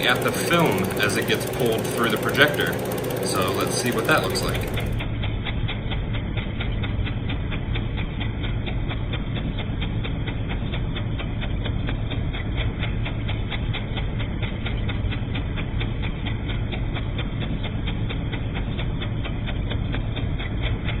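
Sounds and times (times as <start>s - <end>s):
film projector mechanism clicking: 0.0s - 8.8s
projector motor hum: 0.0s - 21.0s.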